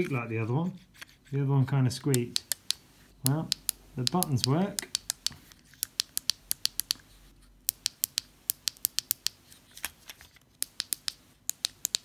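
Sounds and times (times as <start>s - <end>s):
shift buttons clicking: 2.1s - 7.0s, 7.6s - 9.4s, 10.6s - 12.0s.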